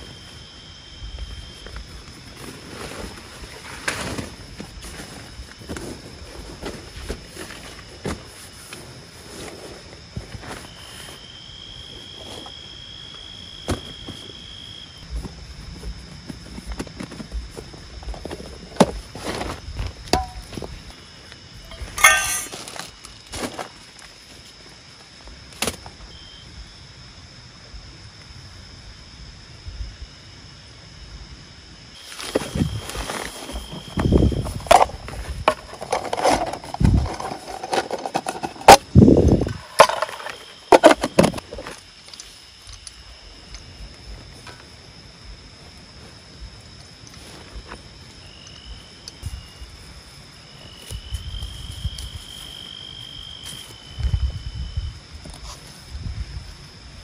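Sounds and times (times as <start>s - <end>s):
insect chirring: 9.9s - 57.0s
ringing clatter: 21.7s - 22.6s
knocks and clatters of gear: 21.7s - 22.9s, 32.3s - 43.0s
objects being handled: 21.7s - 23.6s, 32.0s - 43.0s.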